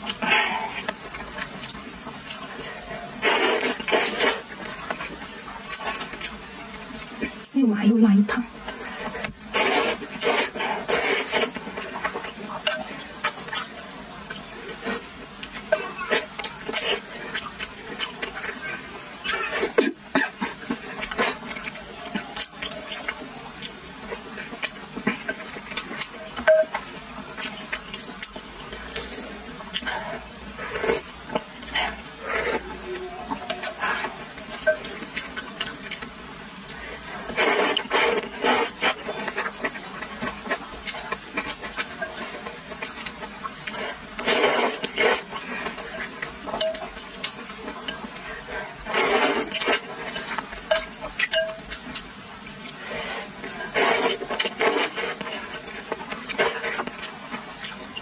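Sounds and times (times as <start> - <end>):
mouth chewing food: 0.0 - 7.6, 8.4 - 58.0
person slurping noodles: 3.2 - 4.5, 9.0 - 12.0, 37.2 - 39.4, 43.7 - 45.6, 48.8 - 50.3, 52.9 - 55.7.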